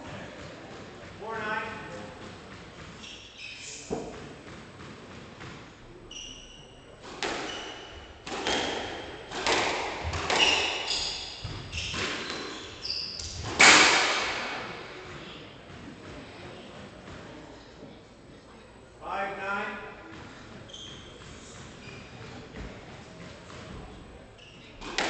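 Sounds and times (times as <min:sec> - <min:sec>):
squash ball hitting rackets and walls: 0:00.1 - 0:17.3, 0:20.0 - 0:25.0
shoes squeaking on wooden floor: 0:02.7 - 0:13.6, 0:20.3 - 0:23.4.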